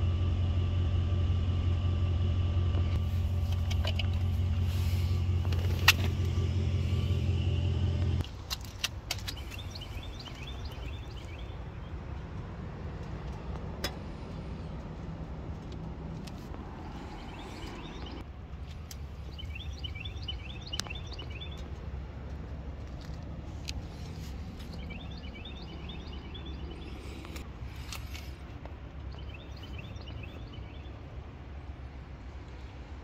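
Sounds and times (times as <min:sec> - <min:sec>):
steady low rumble: 0:00.0 - 0:33.0
birds chirping: 0:09.1 - 0:12.5, 0:16.6 - 0:18.2, 0:19.0 - 0:21.9, 0:23.7 - 0:27.4, 0:28.1 - 0:31.1.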